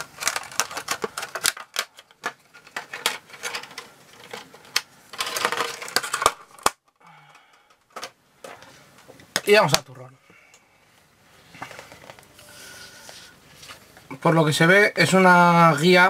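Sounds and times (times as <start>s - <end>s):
plastic packaging crinkling: 0.0s - 6.9s.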